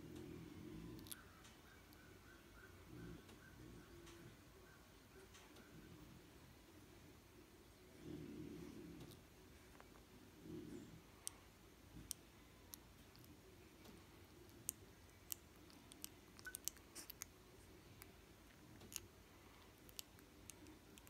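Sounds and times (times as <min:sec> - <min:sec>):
puppy mouth clicks and smacks: 0:14.4 - 0:17.4, 0:19.7 - 0:21.0.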